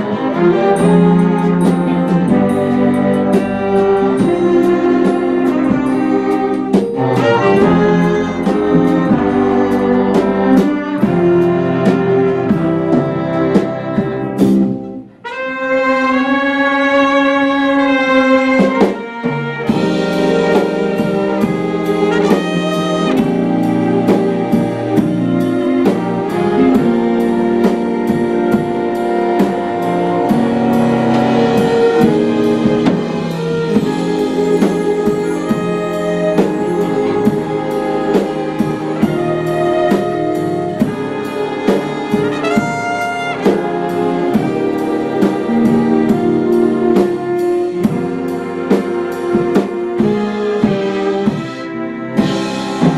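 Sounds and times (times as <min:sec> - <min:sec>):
jazz big band playing: 0:00.0 - 0:52.9
solo trumpet held note: 0:22.1 - 0:23.5, 0:42.3 - 0:44.0.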